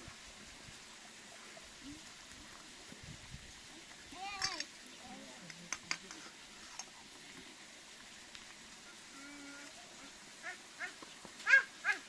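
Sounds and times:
high-pitched animal calls: 8.9 - 12.0.

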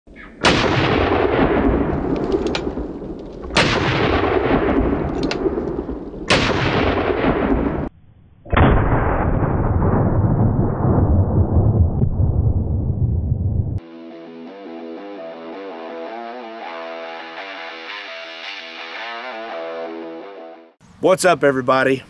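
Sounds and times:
revolver shots booming: 0.4 - 7.9.

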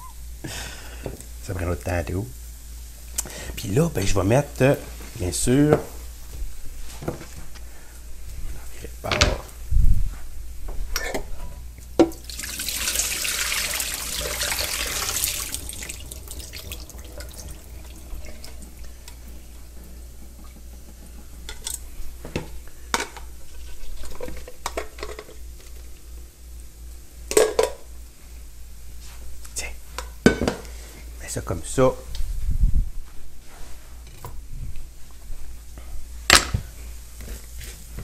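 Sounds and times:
tap running into sink: 12.0 - 19.3.

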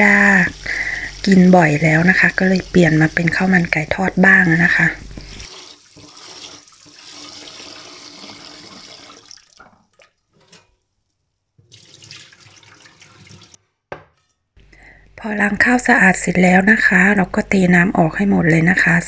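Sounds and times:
tap water running into pot: 4.3 - 10.6, 11.6 - 13.6.

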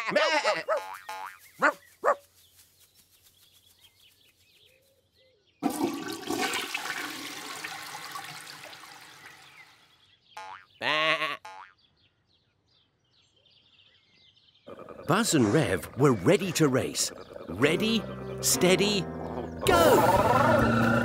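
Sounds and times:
sheep bleating: 0.0 - 1.2, 10.8 - 11.5
toilet flushing: 5.6 - 9.7.

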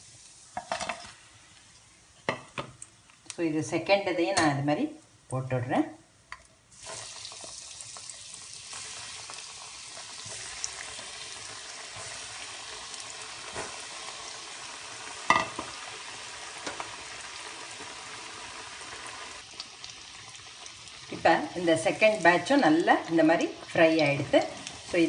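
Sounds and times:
food deep-frying in oil: 6.4 - 25.0.

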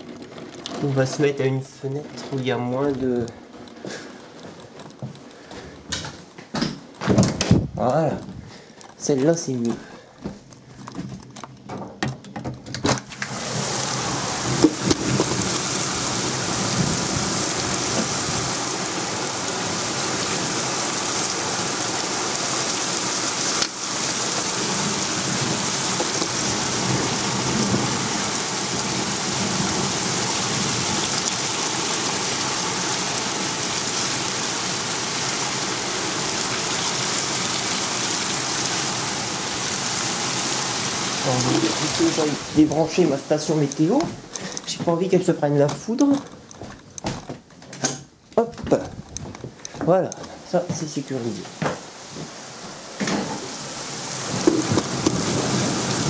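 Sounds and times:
heavy rain pouring: 13.0 - 46.3, 48.7 - 56.0.

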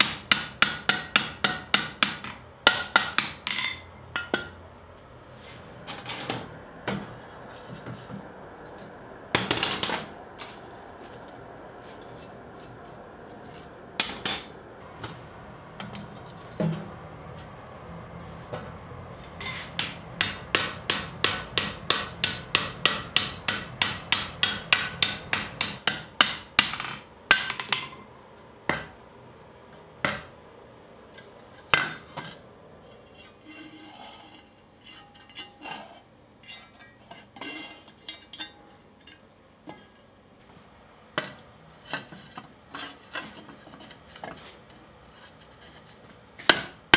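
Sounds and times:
hammer striking hot steel: 0.0 - 4.6, 19.4 - 28.0
forge fire noise: 4.6 - 25.8.

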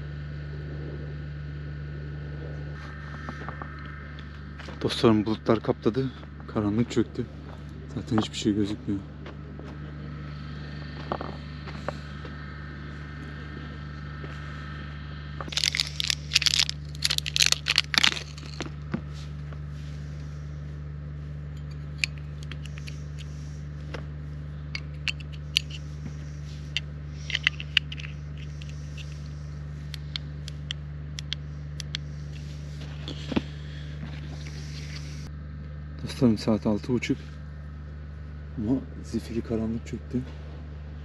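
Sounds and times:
low hum: 0.0 - 41.0
plastic clicks and rustling: 15.5 - 18.7.

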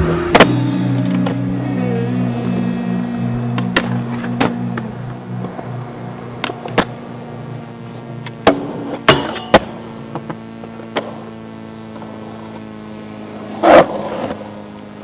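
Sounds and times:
skateboard wheels rolling on concrete: 0.0 - 11.3, 11.9 - 12.6, 13.2 - 15.0
skateboard scrape: 13.4 - 14.5.

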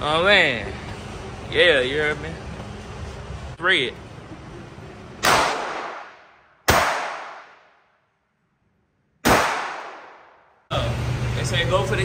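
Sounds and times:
gunshots: 5.2 - 7.7, 9.2 - 10.4.

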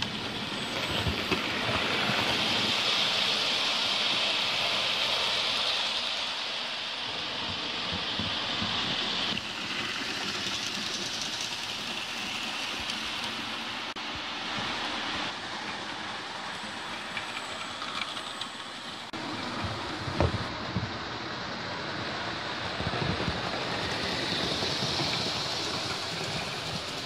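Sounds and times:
model trains whirring on track: 0.0 - 27.0.

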